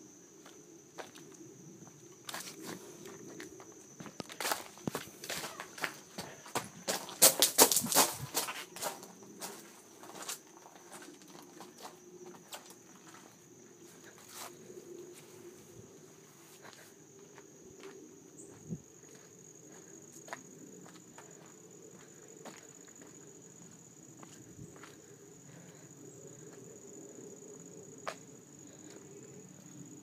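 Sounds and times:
running footsteps on leaves: 4.0 - 9.6.

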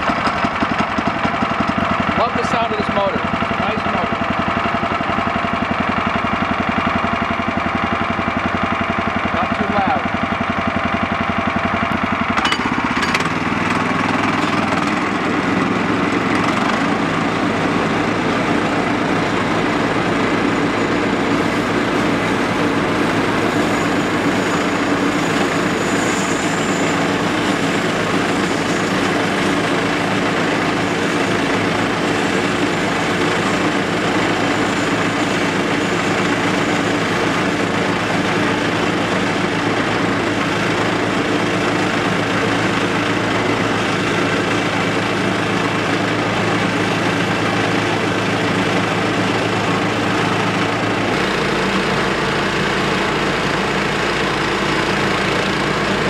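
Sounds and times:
bandsaw cutting through log: 11.9 - 56.0.

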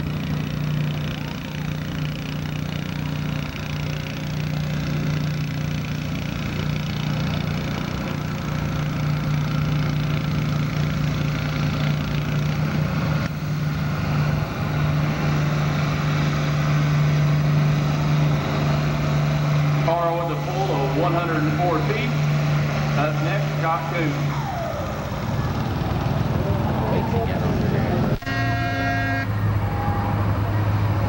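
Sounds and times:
tractor engine running under load: 0.0 - 31.0.

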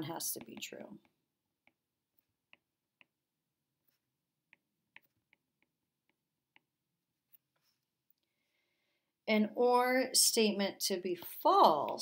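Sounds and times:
stylus tapping glass screen: 0.0 - 8.2.

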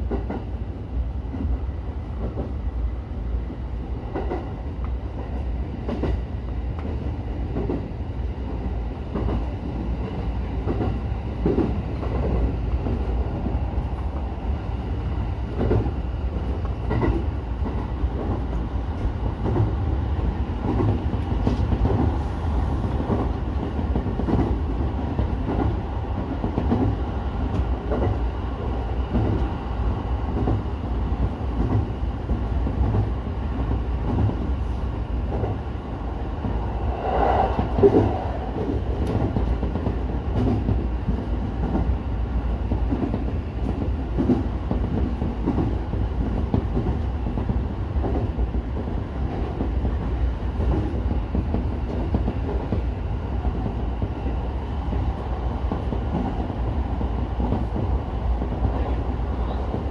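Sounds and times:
train rumbling: 0.0 - 59.9.

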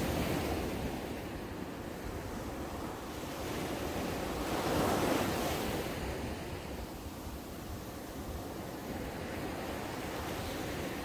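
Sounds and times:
small waves washing up beach: 0.0 - 11.0.

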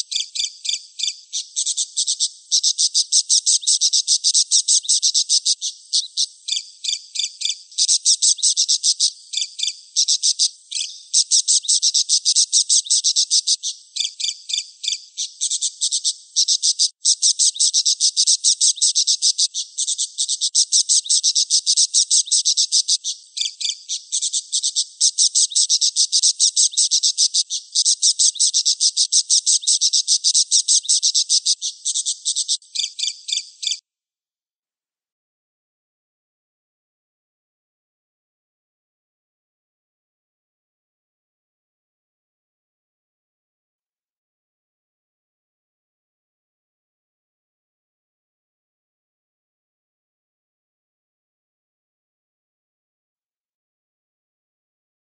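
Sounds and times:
budgerigar chirping: 0.0 - 33.8.

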